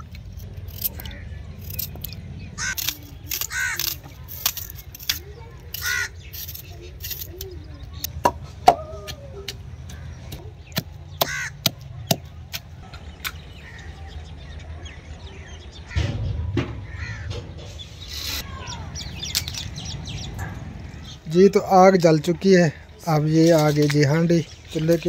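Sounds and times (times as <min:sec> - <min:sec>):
bird calling: 0:05.7 - 0:16.1.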